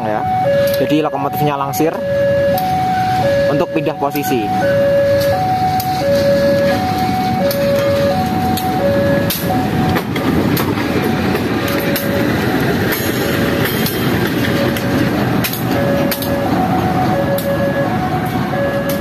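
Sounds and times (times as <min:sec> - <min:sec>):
locomotive engine rumbling: 0:00.0 - 0:19.0
two-tone level-crossing alarm: 0:00.0 - 0:19.0
wheels clanking on rails: 0:04.1 - 0:19.0.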